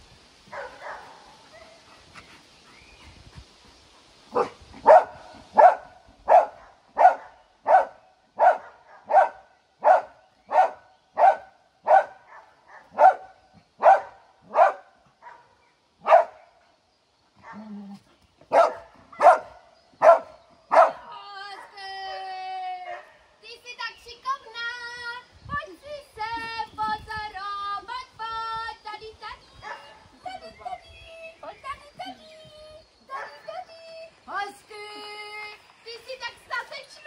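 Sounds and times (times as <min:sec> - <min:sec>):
dog barking: 0:00.5 - 0:01.8, 0:04.4 - 0:16.4, 0:18.5 - 0:21.1.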